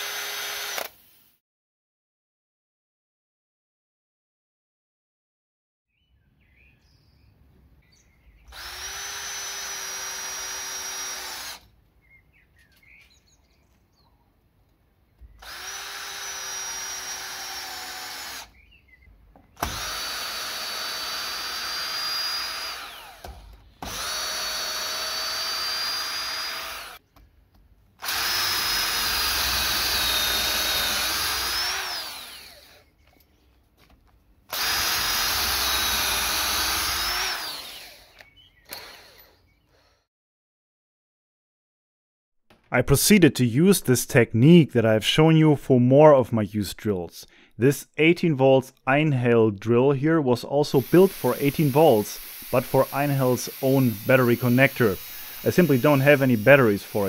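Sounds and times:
cordless drill boring into wood: 0.0s - 1.2s, 8.5s - 11.7s, 15.4s - 18.6s, 19.6s - 27.0s, 28.0s - 32.9s, 34.5s - 40.0s, 50.8s - 57.0s.

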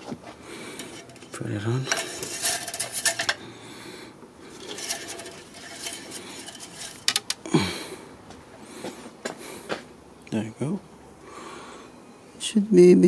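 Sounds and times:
dipstick rattling in its tube: 0.7s - 3.4s, 4.5s - 7.4s.

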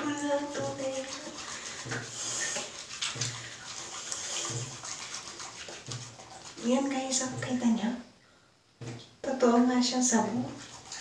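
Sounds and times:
woman's voice: 0.0s - 1.2s, 6.6s - 8.0s, 9.2s - 10.6s
wet hands rubbing soap fruits: 0.0s - 7.9s, 10.0s - 11.0s.

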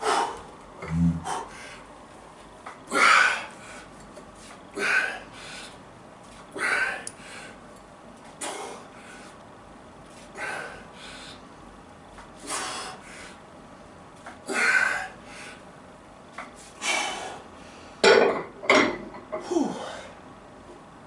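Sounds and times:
man breathing out hard: 10.4s - 11.4s.

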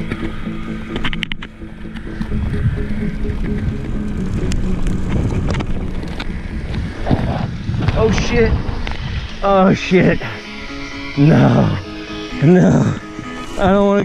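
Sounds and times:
sharp clicks and rattles: 0.0s - 9.4s
bike tyre rumble on dirt: 0.0s - 10.2s
wind buffeting the microphone: 2.1s - 10.3s.

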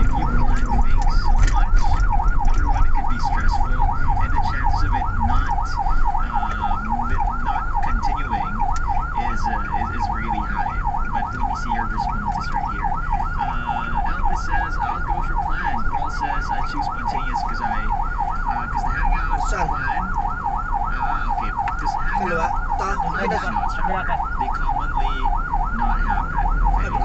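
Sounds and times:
ambulance siren yelping: 0.0s - 27.0s.

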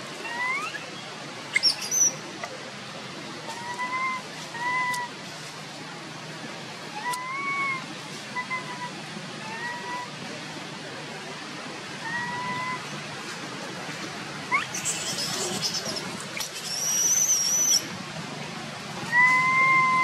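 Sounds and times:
baby monkey whimpering coo calls: 0.2s - 0.8s, 3.5s - 5.2s, 7.0s - 10.1s, 12.0s - 12.9s, 14.5s - 17.8s, 19.1s - 20.0s.

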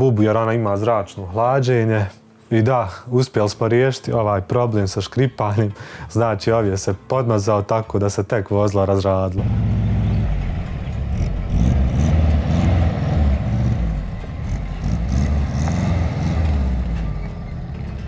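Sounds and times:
car engine rumbling: 9.4s - 18.0s.

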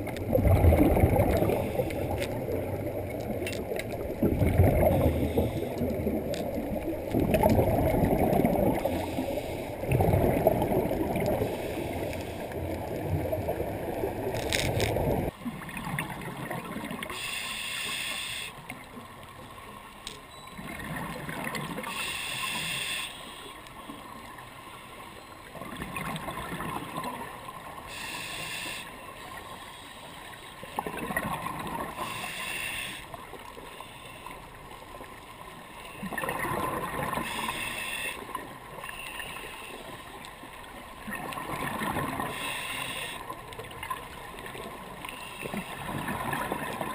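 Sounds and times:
scuba regulator bubbling: 0.0s - 18.6s, 41.0s - 46.9s
underwater rushing water: 0.0s - 46.9s.

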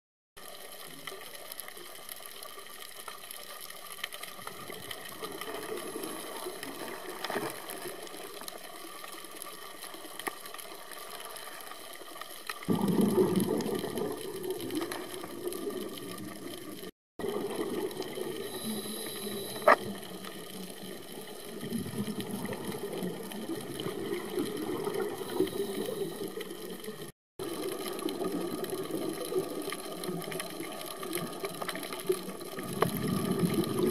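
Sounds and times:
rushing underwater noise: 0.4s - 33.9s
underwater hiss: 17.5s - 21.8s, 22.4s - 27.0s.

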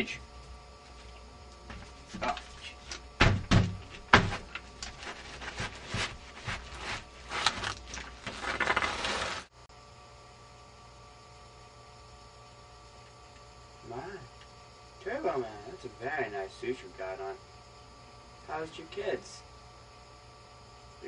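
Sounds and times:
heavy thumps: 3.2s - 7.7s
plastic sheet crinkling: 4.0s - 9.5s.

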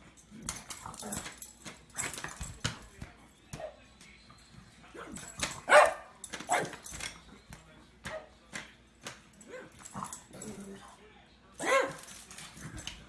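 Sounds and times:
dog barking: 5.6s - 6.8s, 11.6s - 12.0s.

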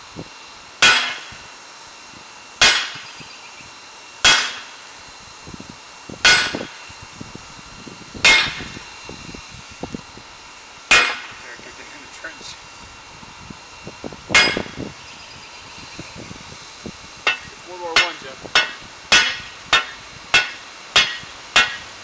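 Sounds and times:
hammer striking metal on anvil: 0.8s - 1.3s, 2.6s - 3.2s, 4.2s - 4.8s, 6.2s - 6.8s, 8.2s - 8.7s, 10.9s - 11.4s, 14.4s - 14.8s, 17.3s - 21.9s.

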